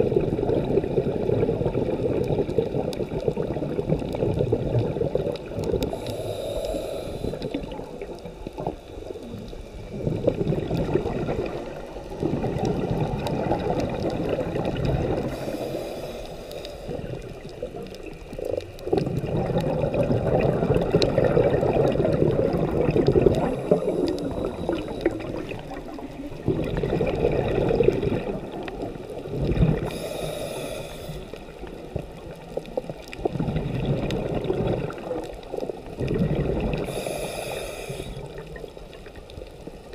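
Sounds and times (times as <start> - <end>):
bubbling exhalation underwater: 0.0 - 6.0, 7.4 - 15.6, 16.9 - 30.1, 31.8 - 37.2
regulator hissing inhalation: 5.9 - 7.7, 15.3 - 17.1, 29.8 - 31.5, 36.9 - 38.4.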